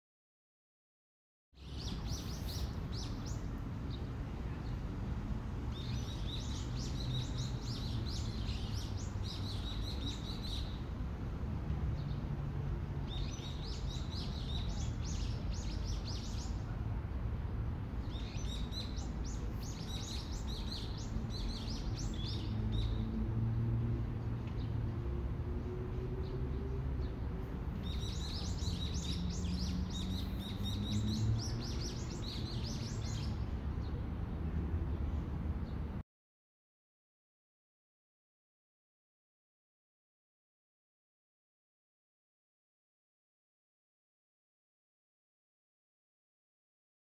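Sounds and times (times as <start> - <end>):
birds chirping: 27.8 - 34.0.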